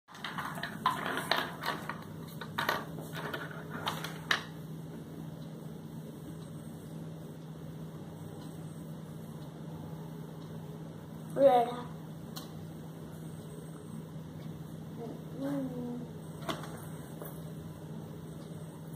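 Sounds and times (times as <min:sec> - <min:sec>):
plastic pens clattering: 0:00.1 - 0:04.4
steady low hum: 0:00.1 - 0:18.9.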